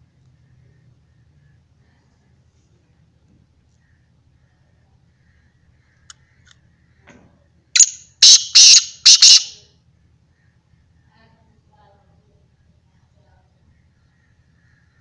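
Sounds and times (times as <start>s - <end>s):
francolin harsh grating call: 7.8s - 9.6s.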